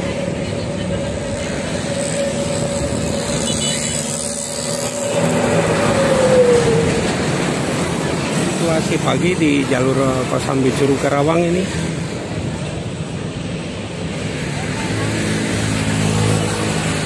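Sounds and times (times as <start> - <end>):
truck passing close by: 0.0 - 10.3
road traffic: 0.0 - 17.0.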